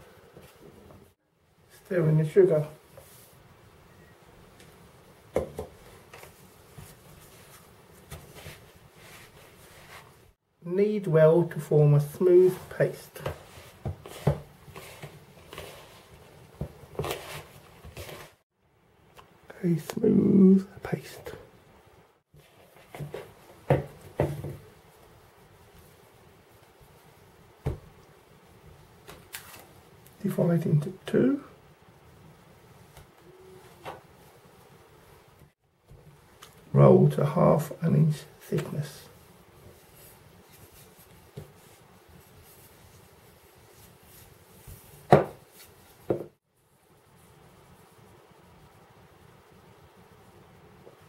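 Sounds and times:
wooden spoon stirring in plastic bowl: 12.6s - 18.4s.

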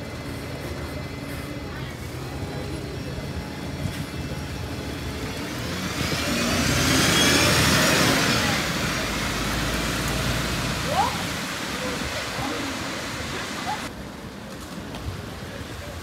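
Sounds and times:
bus engine passing: 0.0s - 16.0s
tyre hiss on wet road: 7.0s - 13.9s.

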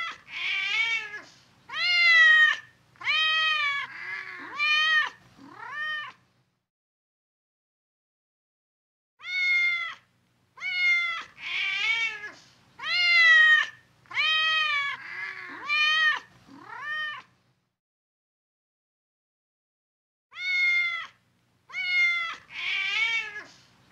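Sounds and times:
cat meowing: 0.0s - 6.2s, 9.2s - 17.3s, 20.3s - 23.5s.

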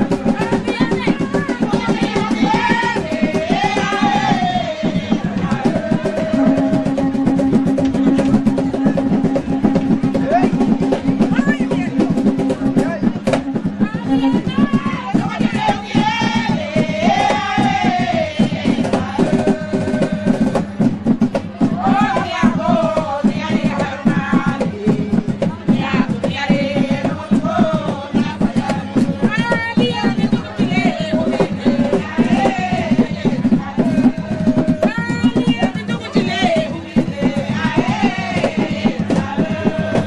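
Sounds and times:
hand drums beating: 0.0s - 40.0s
women singing together: 0.0s - 40.0s.

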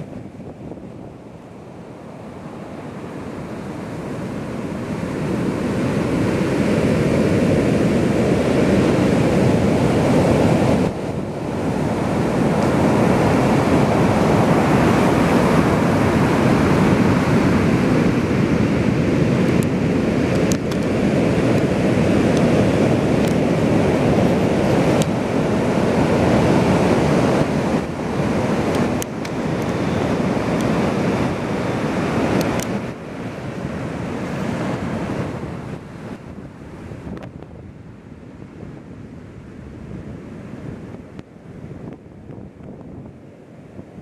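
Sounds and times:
waves breaking on a beach: 0.0s - 44.0s.

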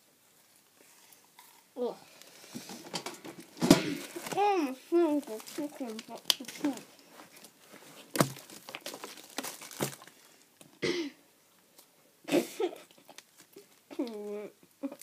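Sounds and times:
breathy laugh or cough: 10.8s - 11.2s, 12.3s - 13.0s.

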